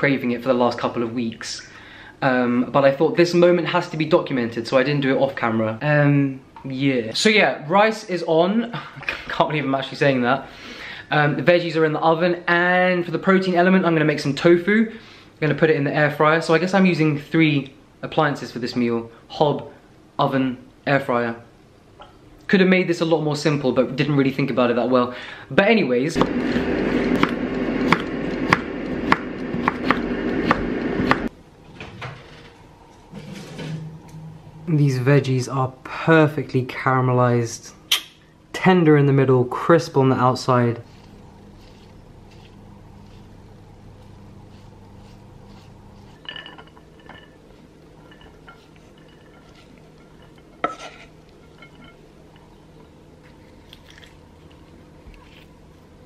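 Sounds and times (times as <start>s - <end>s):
steady hum: 25.2s - 31.7s, 32.3s - 56.0s
rice scraped from metal saucepan: 40.7s - 52.0s
kitchenware clinking: 46.0s - 52.9s.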